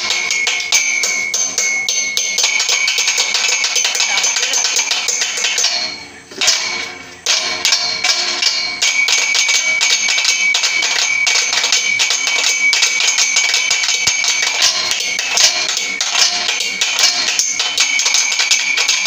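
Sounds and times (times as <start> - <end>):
metallic ring: 0.0 - 19.0
sticks drumming on metal and plastic: 0.0 - 19.0.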